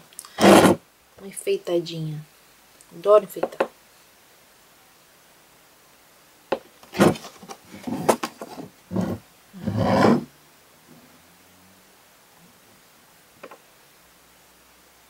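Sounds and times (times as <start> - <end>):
wood scraping on tabletop: 0.4 - 0.8, 6.9 - 10.3.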